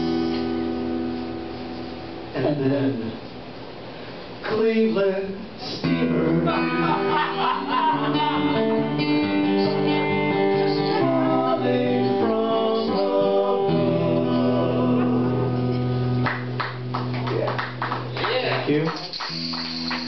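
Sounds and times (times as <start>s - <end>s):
acoustic guitar: 0.0s - 20.0s
men singing slow song: 4.5s - 15.7s.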